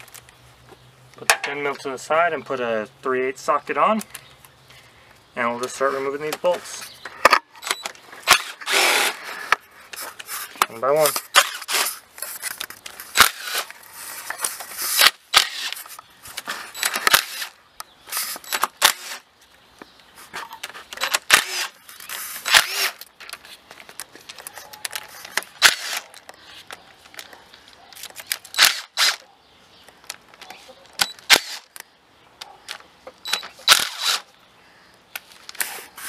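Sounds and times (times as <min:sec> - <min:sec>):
metal bolts and tools clinking: 0:01.2 - 0:02.0, 0:05.6 - 0:17.2.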